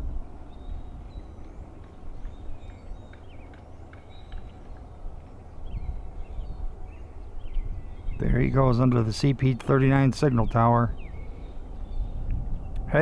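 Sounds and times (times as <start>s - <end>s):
distant diesel locomotive rumble: 0.0s - 13.0s
small birds chirping: 0.0s - 13.0s.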